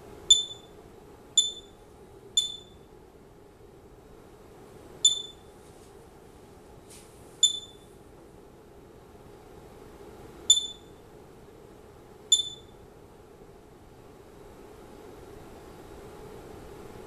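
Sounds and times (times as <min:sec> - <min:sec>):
faint steady hum: 0:00.0 - 0:17.0
geiger counter chirps: 0:00.3 - 0:00.8, 0:01.4 - 0:01.8, 0:02.4 - 0:02.9, 0:05.0 - 0:05.4, 0:07.4 - 0:07.8, 0:10.5 - 0:10.9, 0:12.3 - 0:12.8.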